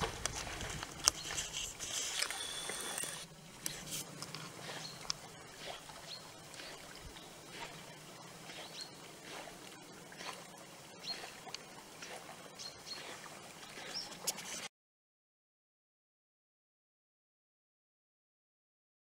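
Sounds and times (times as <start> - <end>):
leaves and twigs rustling: 0.0 - 7.8.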